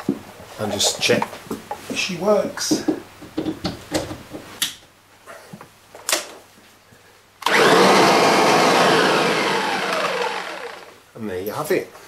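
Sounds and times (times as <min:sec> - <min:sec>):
vacuum cleaner motor running: 0:07.4 - 0:11.0.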